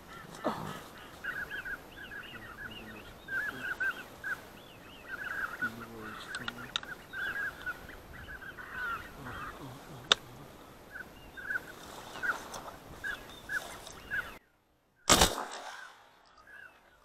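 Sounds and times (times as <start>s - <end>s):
geese honking: 0.0s - 14.4s.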